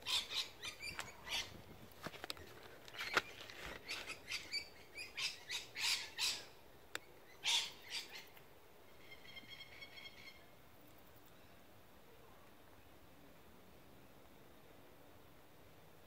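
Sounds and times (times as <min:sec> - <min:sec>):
birds chirping and squawking: 0:03.0 - 0:06.5.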